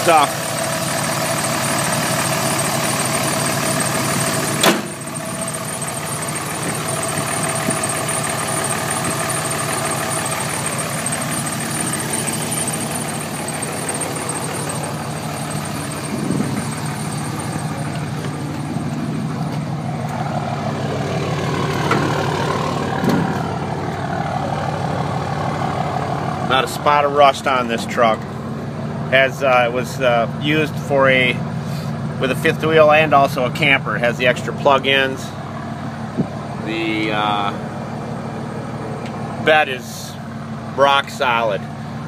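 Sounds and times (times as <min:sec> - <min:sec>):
diesel engine idling: 0:00.0 - 0:42.0
sharp click: 0:04.6 - 0:04.9.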